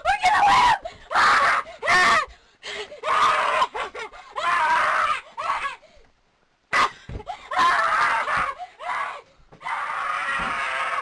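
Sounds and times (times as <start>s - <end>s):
person screaming: 7.6s - 11.0s.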